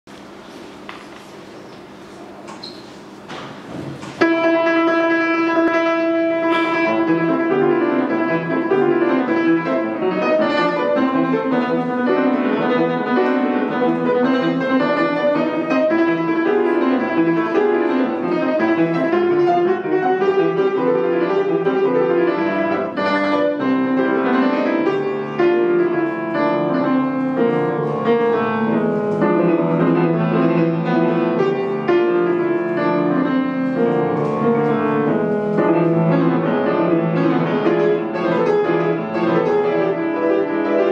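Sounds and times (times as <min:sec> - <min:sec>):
solo classical piano: 0:00.1 - 0:40.9.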